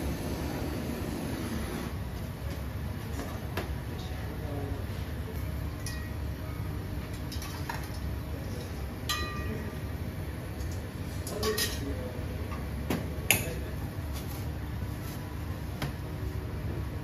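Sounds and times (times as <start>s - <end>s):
tableware clinking: 9.1s - 9.7s.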